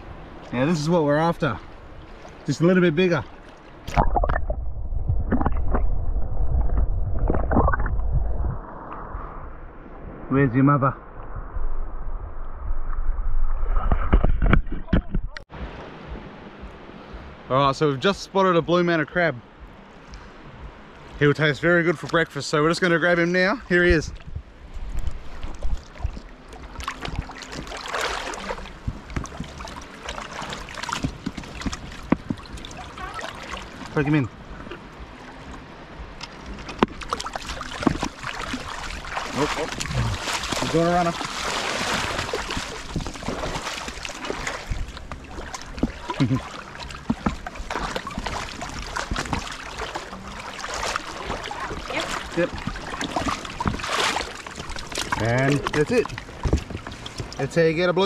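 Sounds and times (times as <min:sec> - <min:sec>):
seawater splashing from wading: 0:25.0 - 0:57.6.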